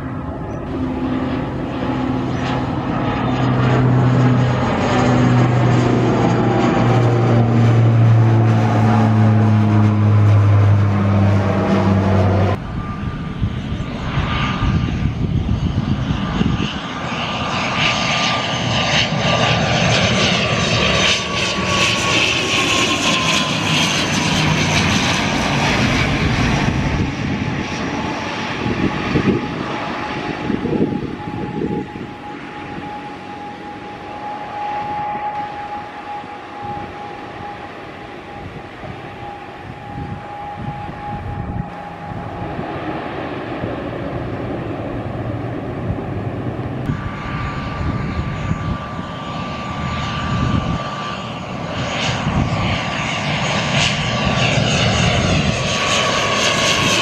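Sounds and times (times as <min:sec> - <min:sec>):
propeller plane drone overhead: 0:00.0 - 0:57.0
turboprop roar with high whine: 0:00.0 - 0:57.0.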